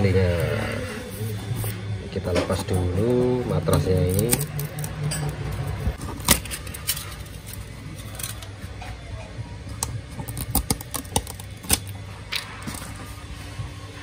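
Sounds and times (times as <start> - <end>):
hands handling clicks and rustles: 3.7 - 8.8
tape peeling: 9.8 - 12.0.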